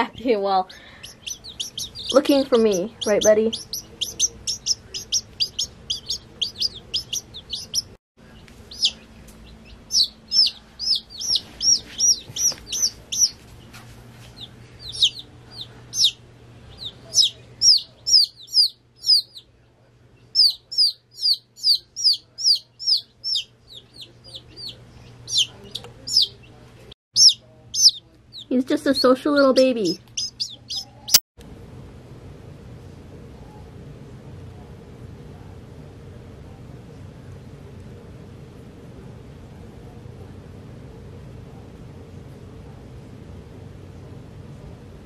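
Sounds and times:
baby chicks peeping: 0:00.1 - 0:31.2.

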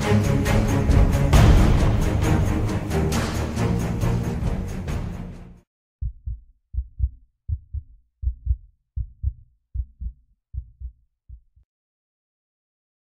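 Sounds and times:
music: 0:00.0 - 0:05.7
heartbeat thumps: 0:06.0 - 0:11.6.

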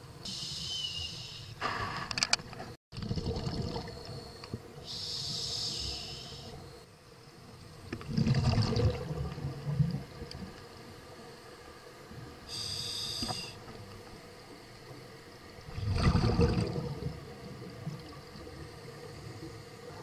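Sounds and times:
scuba regulator hissing inhale: 0:00.2 - 0:02.1, 0:04.1 - 0:06.7, 0:12.5 - 0:13.6
rumble of exhaled bubbles: 0:03.0 - 0:04.2, 0:07.9 - 0:10.6, 0:15.6 - 0:20.0.

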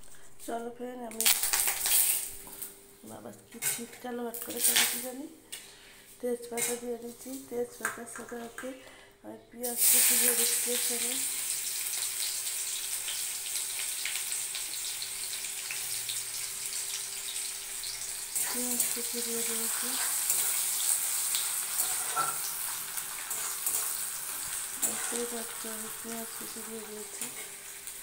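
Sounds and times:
onions sizzling in hot oil: 0:01.2 - 0:02.6, 0:04.3 - 0:05.2, 0:09.6 - 0:28.0
steel spatula scraping a pan: 0:21.8 - 0:22.5.

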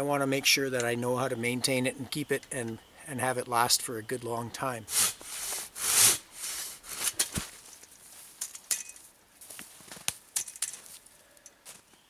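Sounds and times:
folding saw rasping through log: 0:04.9 - 0:07.1
light knocks and crunches: 0:06.9 - 0:11.9.

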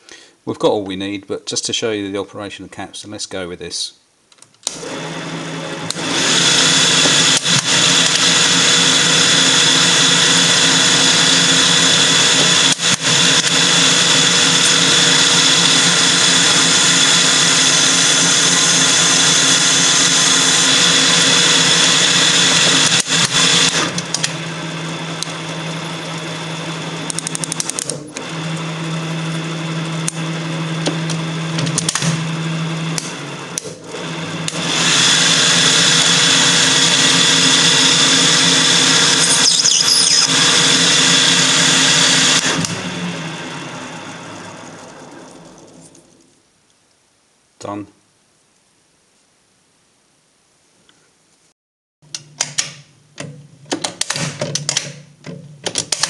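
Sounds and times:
lathe machine running: 0:04.7 - 0:45.9.

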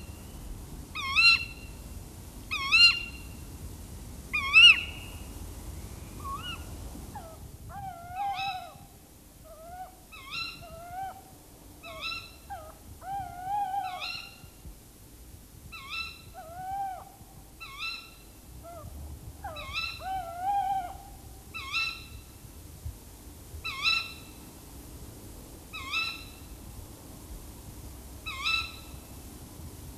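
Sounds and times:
owls giving alarm calls: 0:01.0 - 0:01.6, 0:02.5 - 0:03.2, 0:04.3 - 0:05.1, 0:06.2 - 0:08.8, 0:09.5 - 0:11.2, 0:11.8 - 0:14.5, 0:15.8 - 0:22.2, 0:25.8 - 0:26.3, 0:28.3 - 0:28.9.

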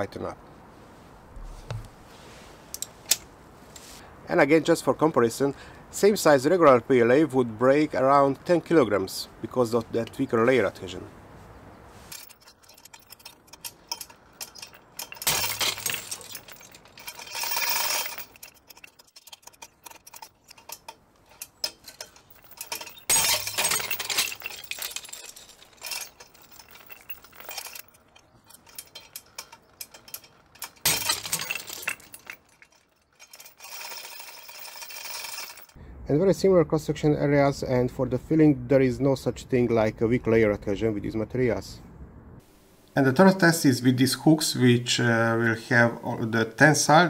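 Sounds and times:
steel hooks and chain rattling: 0:12.1 - 0:35.8.

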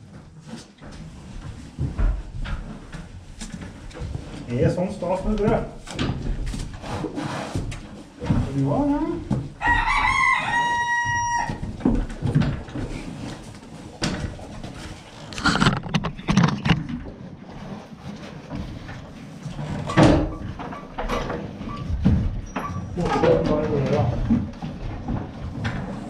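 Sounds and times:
knocks and shuffles on hay floor: 0:00.0 - 0:15.2
rooster crowing: 0:09.6 - 0:11.6.

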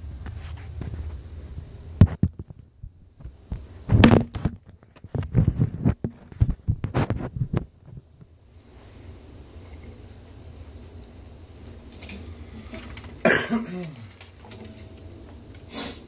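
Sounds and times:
phone handling noise: 0:03.9 - 0:06.6, 0:13.8 - 0:15.6.

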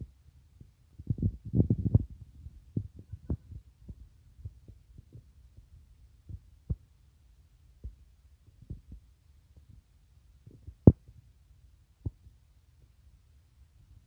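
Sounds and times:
soft low thumps on microphone: 0:00.6 - 0:07.0, 0:07.8 - 0:11.3, 0:12.0 - 0:12.9.

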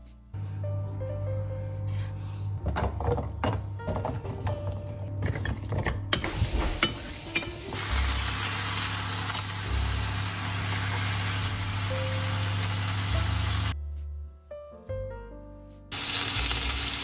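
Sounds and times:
chicken sizzling in a pan: 0:06.2 - 0:13.8, 0:15.9 - 0:17.0.

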